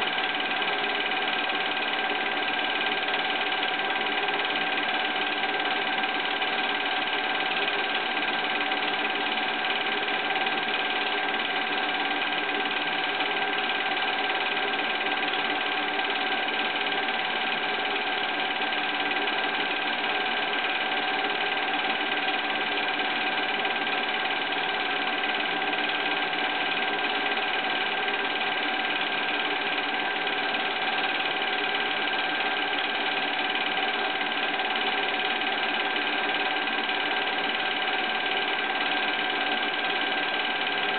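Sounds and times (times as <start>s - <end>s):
film projector clatter: 0.0s - 40.9s
projector whine: 0.0s - 40.9s.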